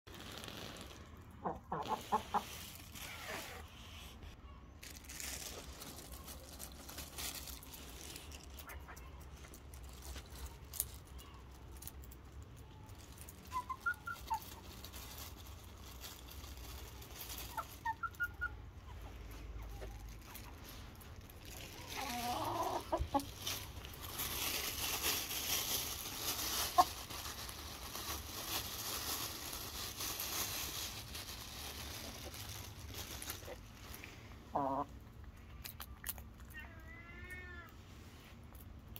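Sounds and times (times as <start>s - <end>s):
plastic bag rustling: 0.1s - 34.3s
hens clucking: 1.2s - 3.0s, 21.7s - 23.7s, 26.3s - 27.1s, 34.3s - 35.2s.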